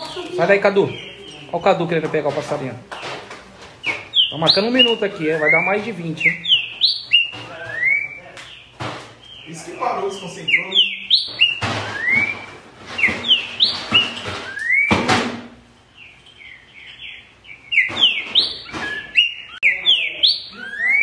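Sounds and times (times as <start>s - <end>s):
bird singing whistled notes: 3.8s - 15.0s, 15.9s - 21.0s.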